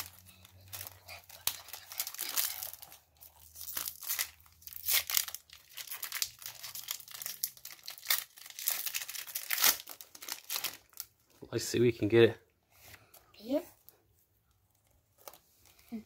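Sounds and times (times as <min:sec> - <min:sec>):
foil wrapper crinkling and tearing: 0:00.0 - 0:11.2.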